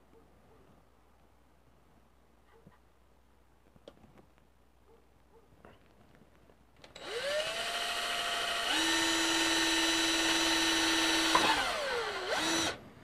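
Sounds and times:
cordless drill whining: 6.8s - 12.8s.

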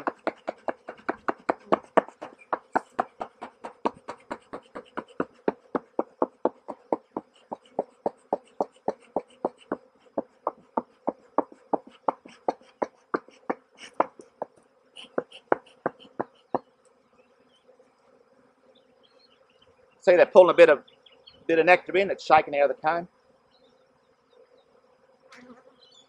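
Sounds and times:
bee smoker bellows puffing: 0.0s - 16.7s
bees buzzing: 0.0s - 26.0s.

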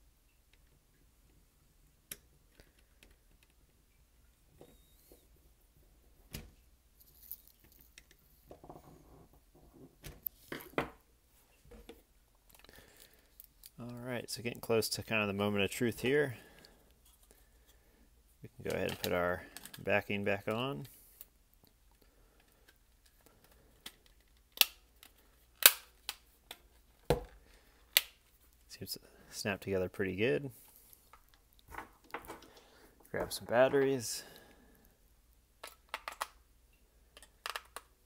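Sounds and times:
plastic parts clicking and knocking: 18.6s - 19.8s, 21.9s - 28.2s, 31.1s - 33.8s, 35.6s - 36.4s, 37.1s - 38.0s.

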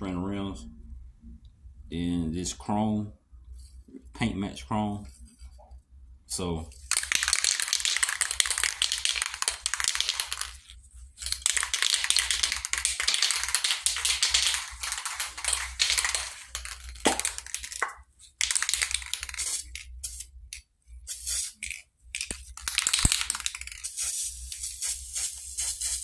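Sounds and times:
spray-paint can hissing: 6.9s - 20.4s, 21.0s - 26.0s.

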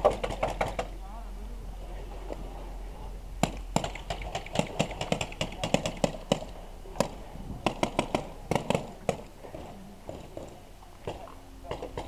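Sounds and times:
airsoft gunshots: 0.0s - 0.9s, 3.4s - 9.3s.

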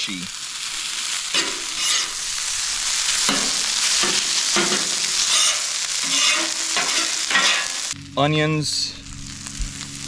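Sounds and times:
rice and egg sizzling on griddle: 0.0s - 10.0s
metal spatula scraping steel: 1.3s - 2.4s, 3.0s - 8.0s.

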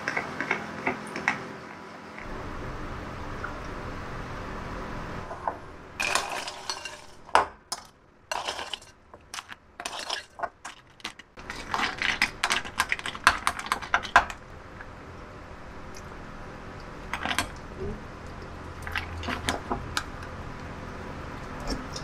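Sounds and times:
spoon scraping crushed ice: 7.8s - 13.9s.

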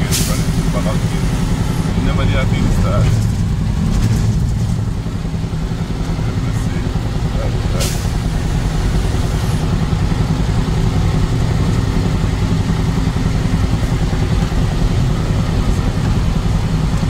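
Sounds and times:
vehicle engine and road noise: 0.0s - 17.0s.

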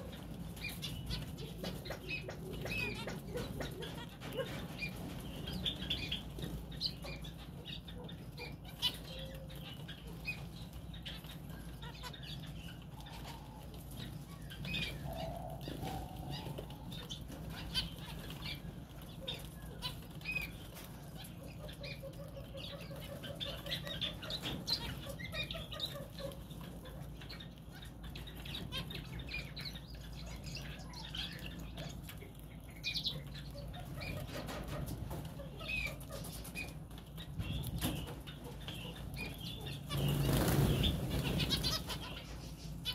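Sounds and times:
finches chirping: 0.0s - 42.9s
wing flutters: 37.6s - 42.9s.

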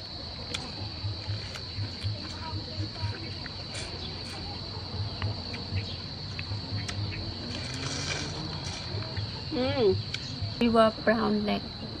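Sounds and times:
insects droning: 0.0s - 12.0s
prawn shell crunching: 7.4s - 9.3s.

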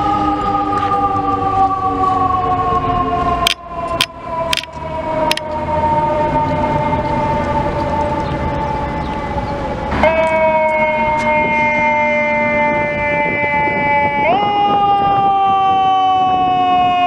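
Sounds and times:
electronic siren wailing: 0.0s - 17.0s
sharp clicks: 3.5s - 4.7s.

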